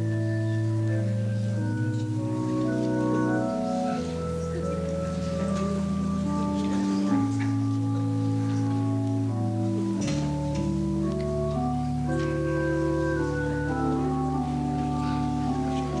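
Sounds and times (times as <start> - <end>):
organ playing sustained chords: 0.0 - 16.0.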